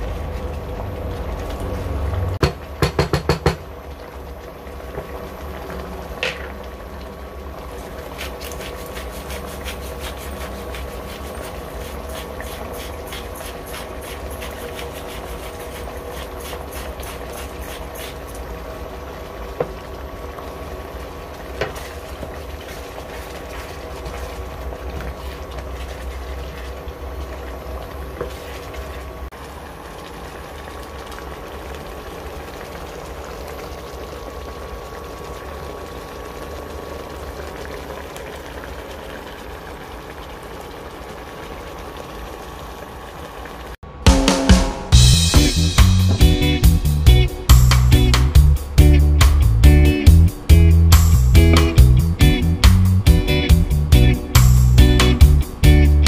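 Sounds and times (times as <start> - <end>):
sauce simmering and bubbling: 0.0 - 44.0
cooktop hum: 0.0 - 56.0
wooden spatula knocking on pan: 2.4 - 3.6.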